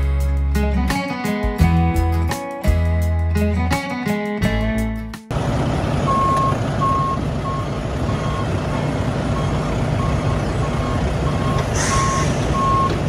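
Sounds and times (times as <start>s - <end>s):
engine running: 5.3s - 13.0s
vehicle backup alarm beeping: 6.0s - 13.0s.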